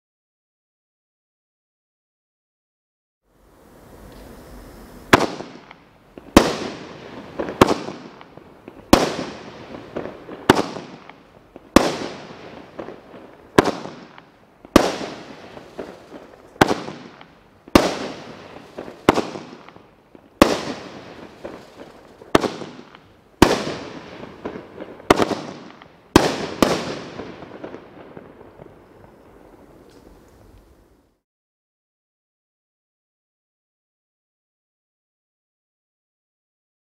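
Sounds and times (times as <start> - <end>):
fireworks bangs with crackling tails: 3.6 - 31.0.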